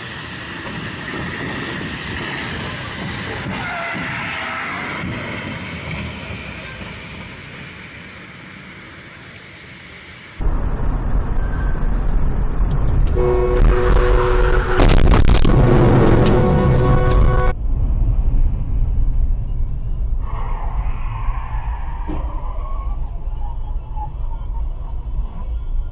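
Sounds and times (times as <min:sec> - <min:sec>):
tyres hissing on wet road: 0:00.0 - 0:10.4.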